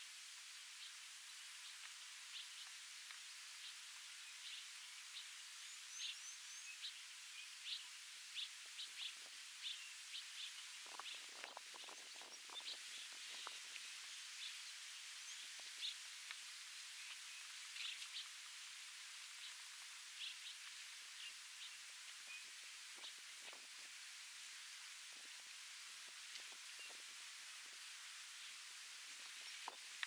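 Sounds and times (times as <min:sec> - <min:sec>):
steady outdoor hiss: 0:00.0 - 0:30.0
small birds chirping: 0:01.6 - 0:23.8
low crackling and rustling: 0:08.6 - 0:30.0.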